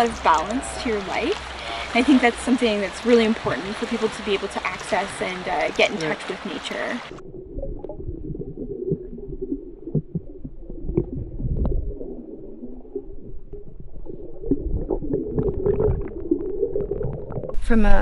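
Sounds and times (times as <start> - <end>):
muffled water sloshing and gurgling: 0.0 - 17.7
low rumble: 7.0 - 18.0.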